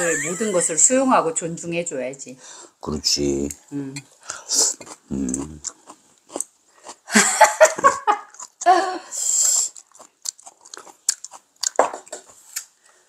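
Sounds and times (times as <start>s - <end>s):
light chewing: 3.4s - 7.1s, 8.1s - 13.0s.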